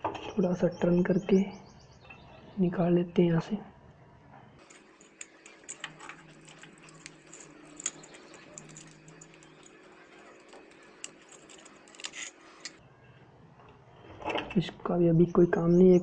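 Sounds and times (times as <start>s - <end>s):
small metallic clicks and scrapes: 4.6s - 12.8s.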